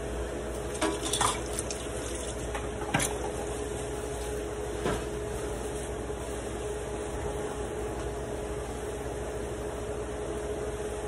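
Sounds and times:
utensils clattering: 0:00.7 - 0:03.4.

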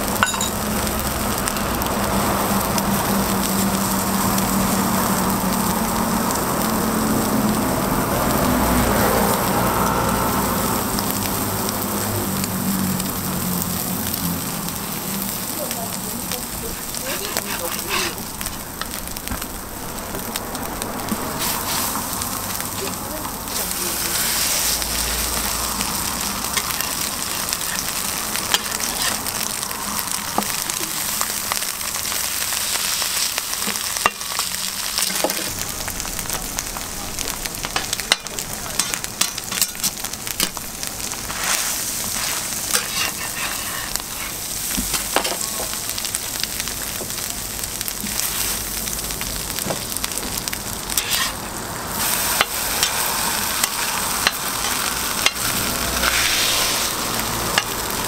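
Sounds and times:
food sizzling on griddle: 0:00.0 - 0:58.0
metal spatula scraping griddle: 0:16.7 - 0:18.8, 0:21.4 - 0:21.9, 0:23.5 - 0:24.8, 0:41.3 - 0:44.5, 0:50.9 - 0:51.4, 0:52.0 - 0:57.8.

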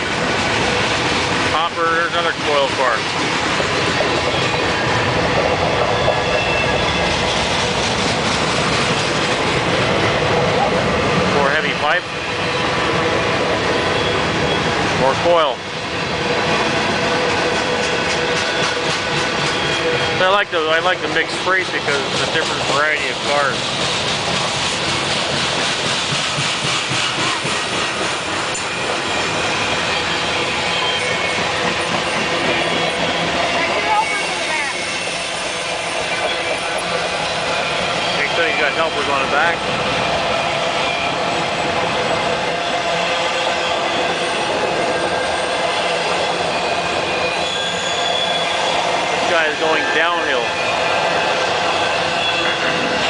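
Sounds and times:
freight train wheels clattering: 0:00.0 - 0:53.0
high wheel squeal: 0:05.8 - 0:07.3, 0:13.7 - 0:14.8, 0:26.7 - 0:53.0.

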